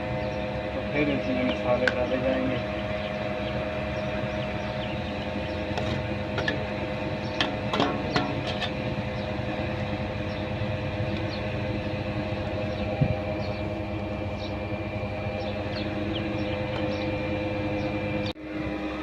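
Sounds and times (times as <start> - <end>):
steady machine hum: 0.0 - 19.0
ladle scraping steel plate: 7.4 - 8.9.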